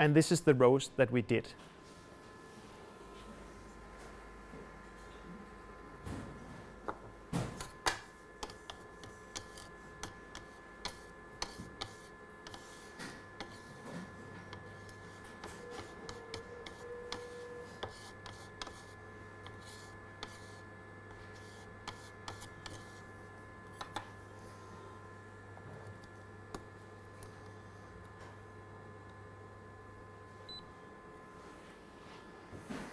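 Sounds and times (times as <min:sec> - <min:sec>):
faint steady hum: 0:00.0 - 0:32.9.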